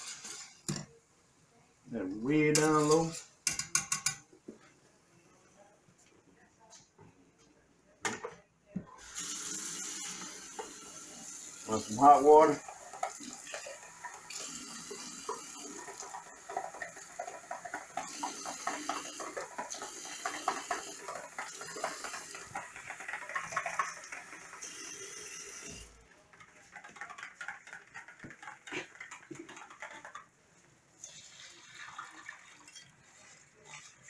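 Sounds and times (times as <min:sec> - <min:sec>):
tap water running into container: 0:09.0 - 0:25.9, 0:31.0 - 0:34.0
whisk clicking and scraping: 0:15.3 - 0:24.9, 0:26.3 - 0:30.3.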